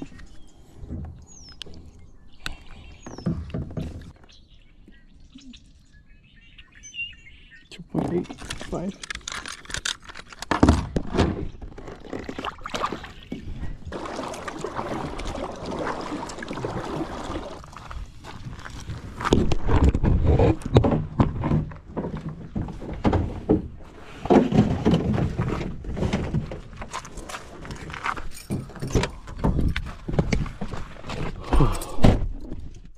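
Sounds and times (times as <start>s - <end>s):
handling knocks and rustling: 3.0s - 4.3s, 17.9s - 32.9s.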